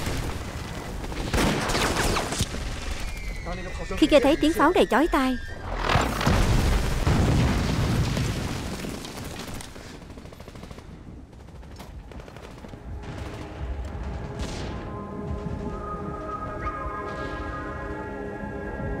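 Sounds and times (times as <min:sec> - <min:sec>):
rapid gunfire: 0:06.0 - 0:14.9.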